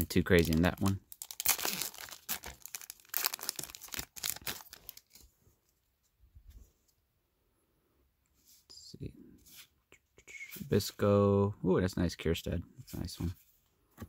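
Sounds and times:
card pack wrapper tearing: 0:00.3 - 0:05.2
wrapper crinkling: 0:00.3 - 0:05.2.

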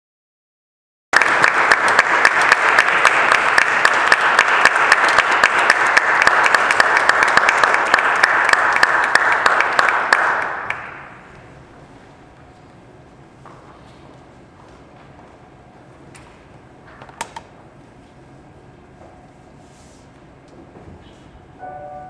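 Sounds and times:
audience applauding: 0:01.2 - 0:11.2.

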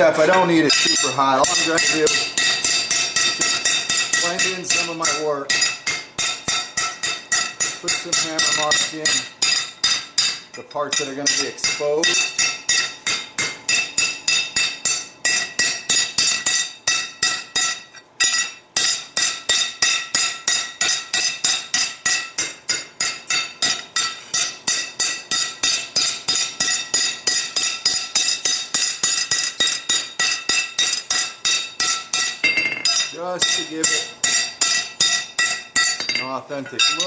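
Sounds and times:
hammer ringing on steel: 0:00.0 - 0:37.0.

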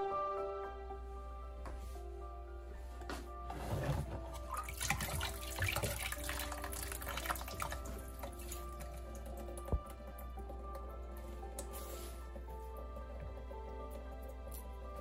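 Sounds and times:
soft background music: 0:00.0 - 0:15.0
water pouring and dripping: 0:04.3 - 0:12.1.

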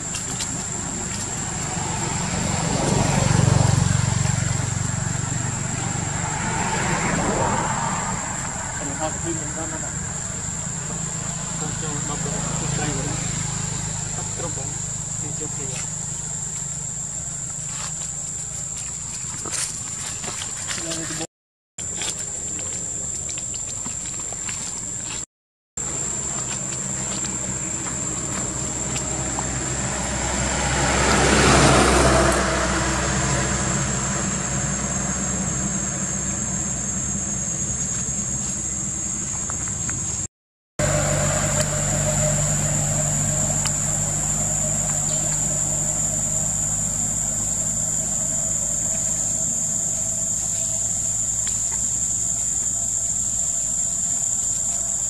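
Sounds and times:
motor vehicle passing: 0:00.0 - 0:21.3, 0:25.8 - 0:55.0
low engine hum: 0:00.0 - 0:55.0
high-pitched whine: 0:40.8 - 0:55.0.

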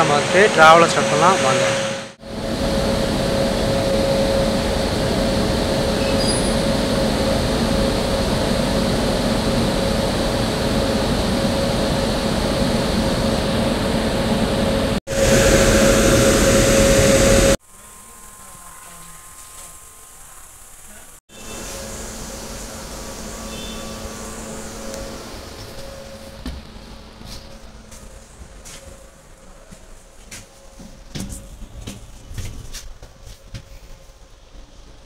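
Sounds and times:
constant whine: 0:00.0 - 0:30.8
locomotive cooling blowers: 0:00.0 - 0:33.8.

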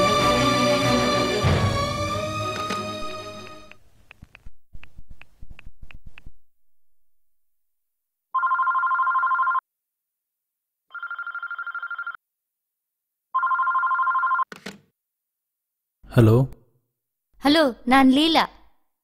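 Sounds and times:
telephone ringing: 0:08.3 - 0:09.6, 0:10.9 - 0:12.2, 0:13.3 - 0:14.5.

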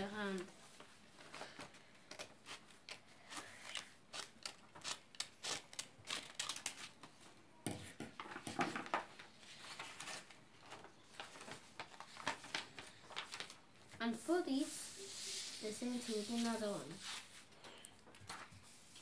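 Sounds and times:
scissors snipping paper: 0:03.6 - 0:07.0
paper rustling: 0:08.2 - 0:19.0.

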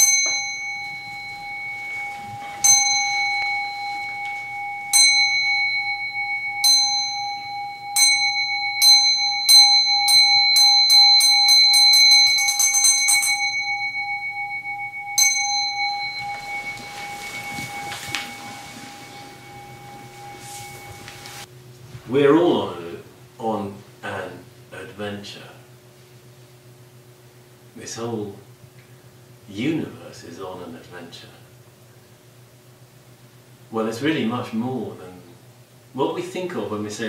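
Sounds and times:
meditation bell ringing: 0:00.0 - 0:21.5.

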